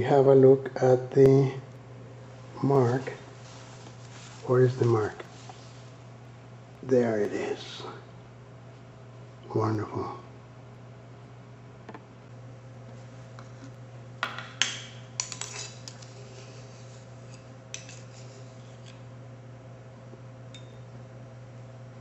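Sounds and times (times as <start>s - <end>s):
glassware clinking: 20.5s - 20.8s.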